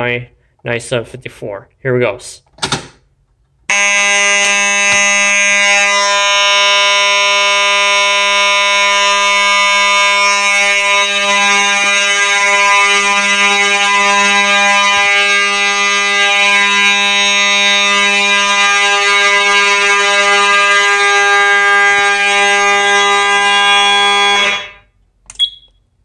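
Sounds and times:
fire alarm horns sounding: 3.7 - 25.7.

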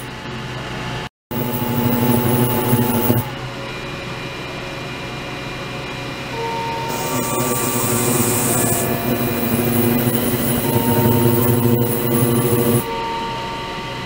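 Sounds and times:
low hum: 1.3 - 3.5, 6.5 - 14.0.

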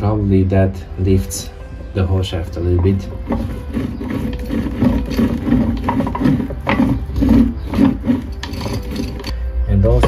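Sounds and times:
meshing gears rumbling: 1.6 - 10.0.

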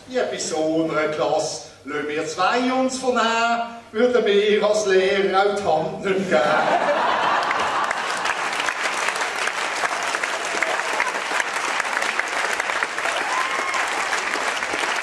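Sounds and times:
audience clapping: 7.0 - 15.0.

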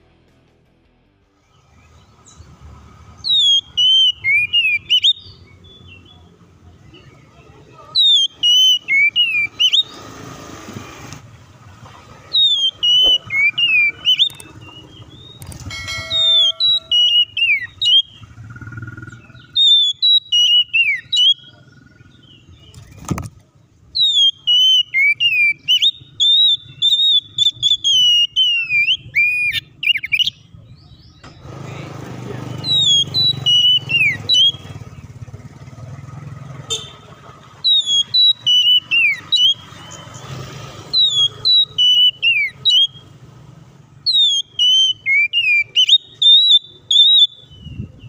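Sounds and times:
bird singing whistled phrases: 3.2 - 6.3, 7.9 - 9.9, 12.3 - 22.8, 23.9 - 30.5, 32.5 - 34.8, 37.6 - 40.2, 40.9 - 43.1, 44.0 - 48.0.

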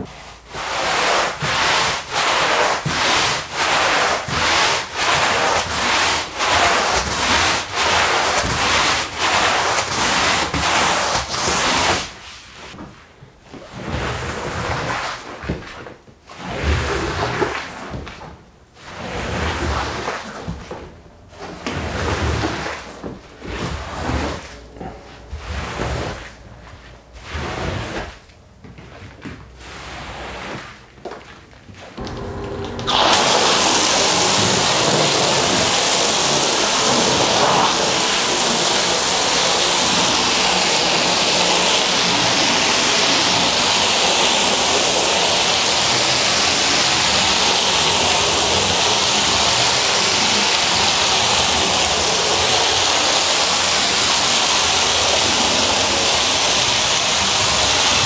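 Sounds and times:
push broom scrubbing wet rug: 0.0 - 58.0
squeegee drawn across rug: 21.6 - 32.0.

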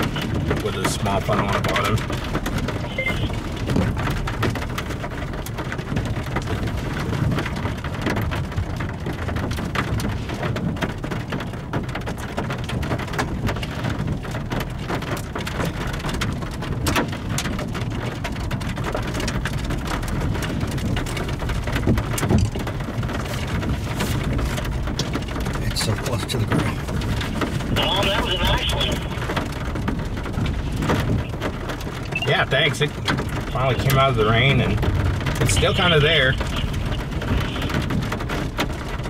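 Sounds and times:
raindrops tapping sharply: 0.0 - 39.0
steady rain falling: 0.0 - 39.0.

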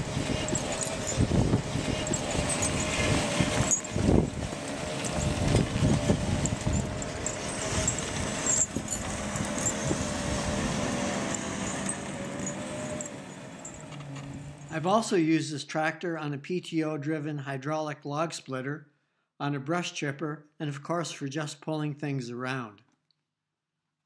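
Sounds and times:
tractor engine humming: 0.0 - 14.8.

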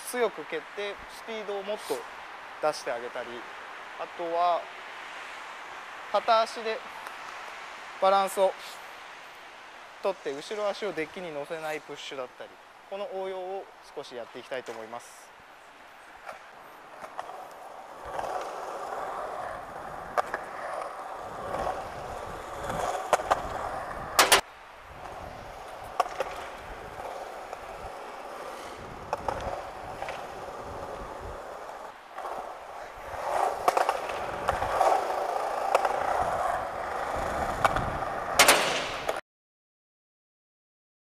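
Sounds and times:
skateboard wheels rolling on concrete: 0.0 - 39.2
skateboard clacks: 16.2 - 24.4, 25.0 - 39.2.

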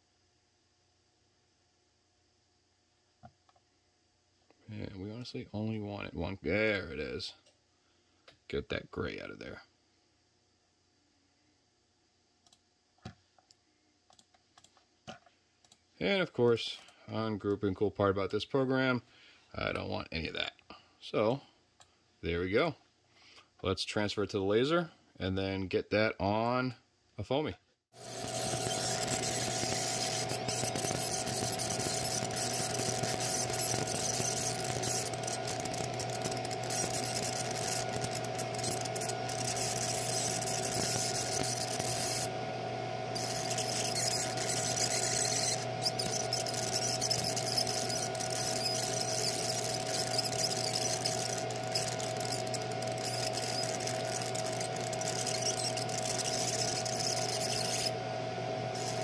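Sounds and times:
laser engraver hiss and whine: 28.0 - 59.0
steady hum: 28.0 - 59.0.

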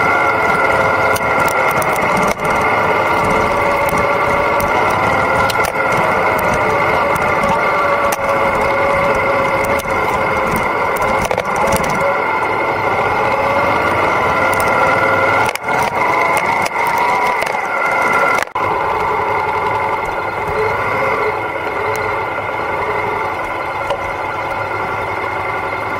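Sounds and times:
clicks and rattles from motorcycle: 0.0 - 12.2, 13.1 - 18.6
motorcycle engine running: 0.0 - 25.9.

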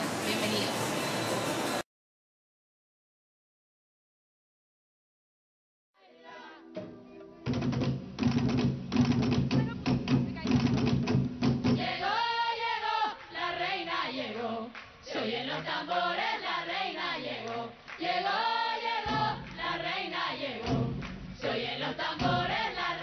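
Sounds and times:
group singing folk song: 6.0 - 6.9, 11.5 - 23.0
light percussion: 6.8 - 12.0, 19.0 - 23.0
deep drum beats: 7.4 - 12.1, 19.0 - 23.0.

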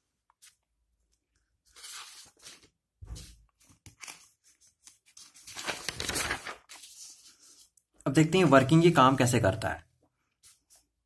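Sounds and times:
paper rustling and crinkling: 1.6 - 7.8.

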